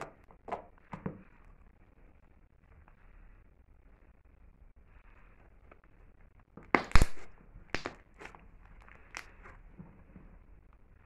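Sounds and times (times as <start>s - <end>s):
air pockets popping: 6.6s - 8.4s.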